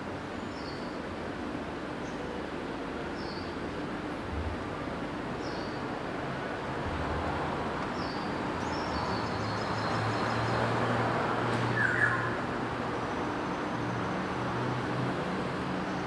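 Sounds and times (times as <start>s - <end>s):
traffic noise: 0.0s - 16.0s.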